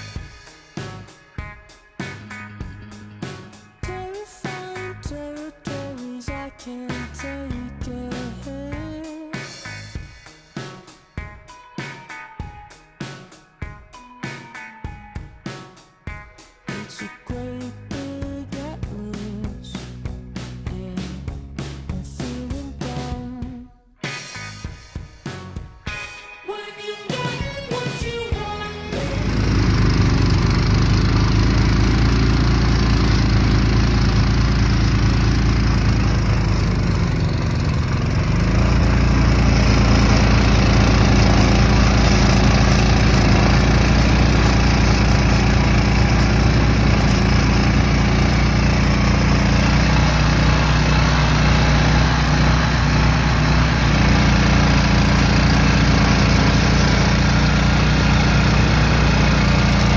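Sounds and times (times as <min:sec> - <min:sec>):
small engine running under load: 0:28.6 - 0:59.9.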